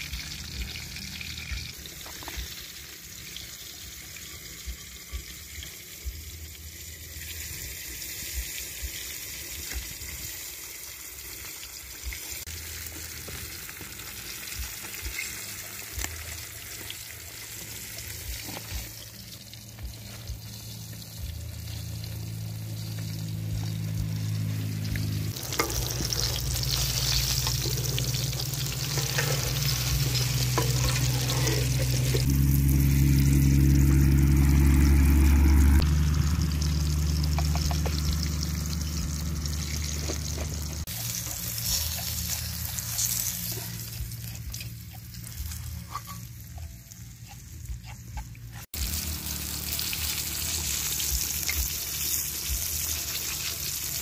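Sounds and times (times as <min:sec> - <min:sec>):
fish deep-frying in oil: 0:00.0 - 0:54.0.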